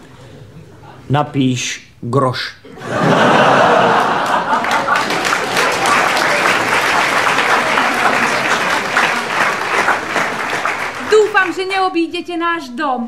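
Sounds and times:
audience applauding: 2.9s - 11.8s.

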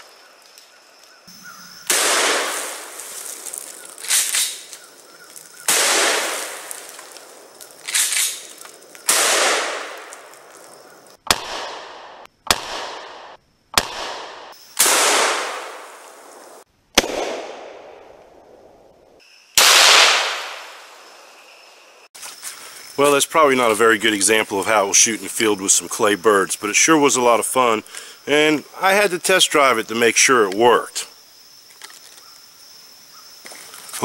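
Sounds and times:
shotgun blasts echoing: 1.9s - 3.0s, 5.7s - 6.7s, 9.1s - 10.1s, 11.3s - 16.0s, 17.0s - 18.2s, 19.6s - 20.9s.

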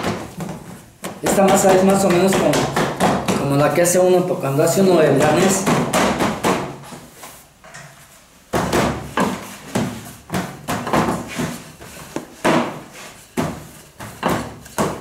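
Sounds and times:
rolling pin on steel table: 8.6s - 15.0s.

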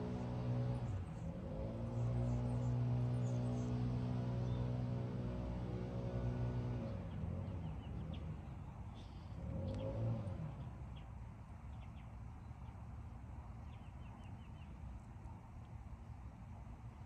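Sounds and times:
small birds chirping: 6.9s - 15.8s.

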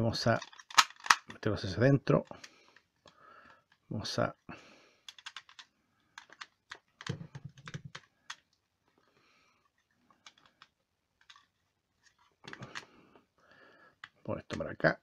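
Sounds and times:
toy figure parts clicking: 0.2s - 1.4s, 5.1s - 8.5s.

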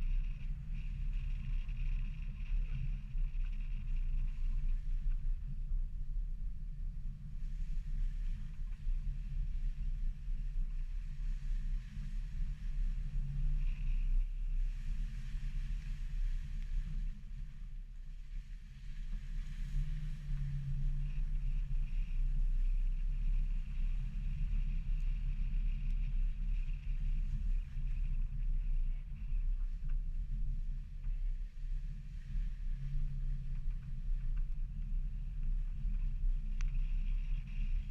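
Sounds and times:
muffled rumble of engine and tyres: 0.0s - 37.9s.

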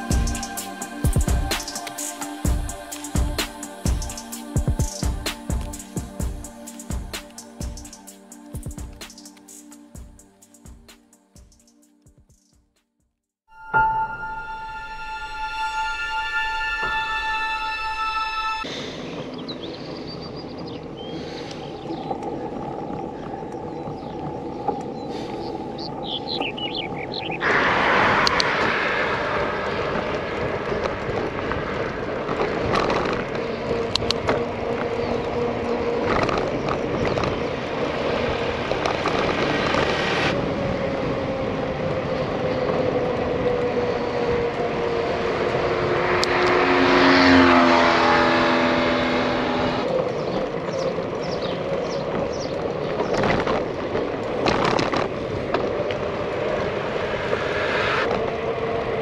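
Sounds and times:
bicycle road noise on asphalt: 0.0s - 3.4s, 14.9s - 59.0s
rushing wind: 13.7s - 59.0s
car passing: 27.0s - 52.5s, 53.7s - 59.0s.

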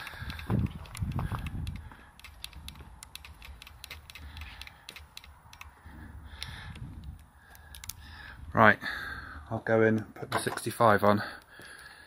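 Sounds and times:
camera rig handling clicks: 0.1s - 5.7s, 6.4s - 8.0s.

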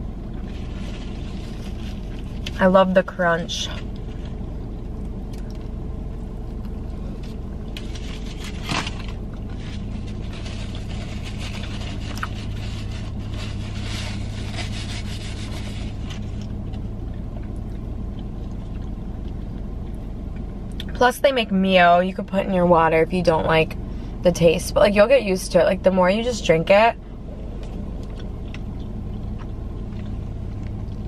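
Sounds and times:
car cabin hum: 0.0s - 31.0s
person chewing: 3.9s - 7.9s, 16.0s - 20.9s, 27.6s - 31.0s
sharp rustle: 7.8s - 16.4s.

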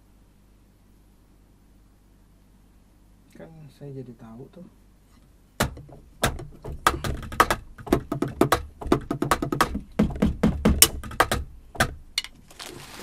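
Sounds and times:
drumsticks tapping drum pads: 5.6s - 12.4s.

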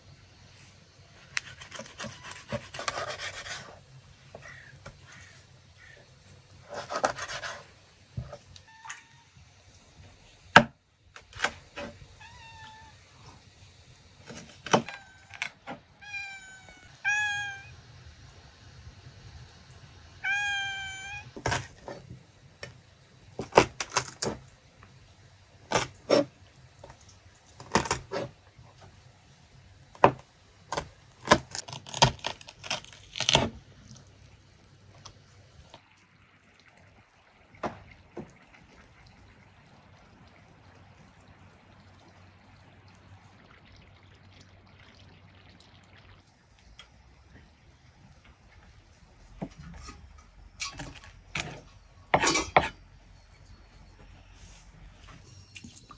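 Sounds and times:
cat meowing: 12.2s - 13.0s, 14.8s - 17.8s, 20.2s - 21.4s.

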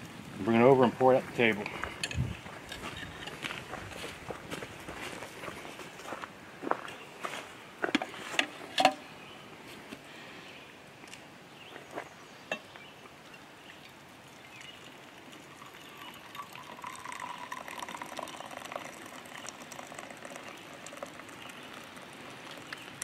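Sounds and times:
coffee pouring into mug: 13.7s - 23.0s.

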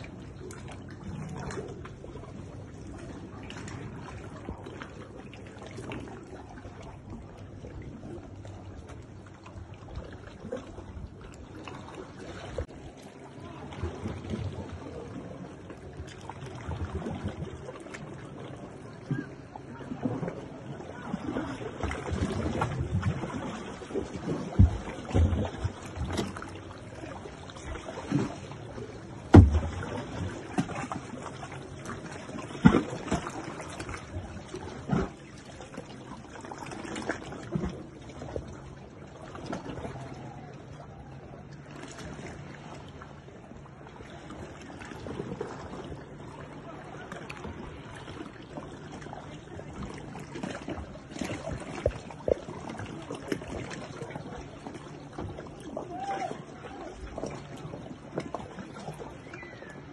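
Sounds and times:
kayak paddle splashes: 0.0s - 59.9s
paddle knocks: 29.2s - 30.9s.

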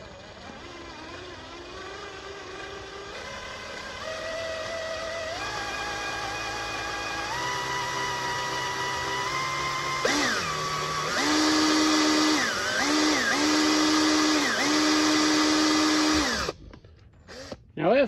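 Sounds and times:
power drill motor whining: 0.0s - 17.6s.

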